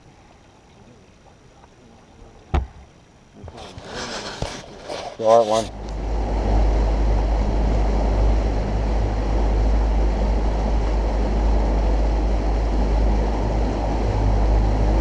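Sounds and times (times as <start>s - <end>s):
outboard motor rumbling: 0.0s - 15.0s
rushing water: 0.0s - 15.0s
rushing wind: 3.5s - 15.0s.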